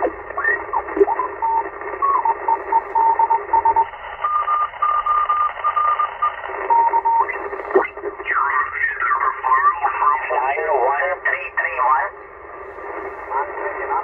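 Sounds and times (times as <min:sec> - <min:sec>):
shortwave radio static: 0:00.0 - 0:14.0
morse code beeping: 0:01.0 - 0:07.4.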